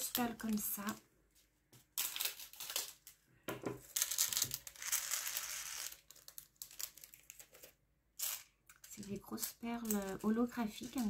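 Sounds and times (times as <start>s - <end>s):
plastic beads rattling in a tray: 3.8s - 11.0s.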